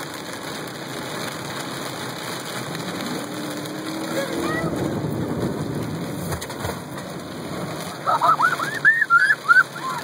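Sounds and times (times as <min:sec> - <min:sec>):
heavy rain on car: 0:00.0 - 0:10.0
road noise inside car: 0:00.0 - 0:10.0
water washing over windshield: 0:00.0 - 0:10.0
child hooting and squealing: 0:08.2 - 0:10.0.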